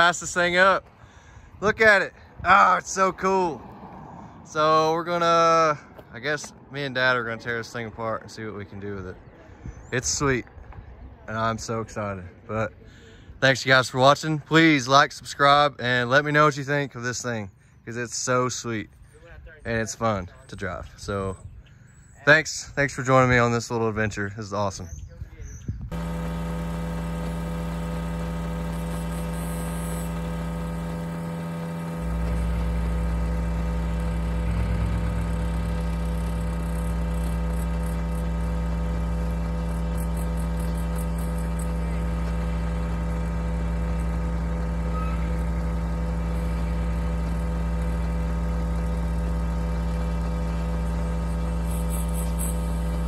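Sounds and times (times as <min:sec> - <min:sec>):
truck engine idling: 0:25.9 - 0:53.0.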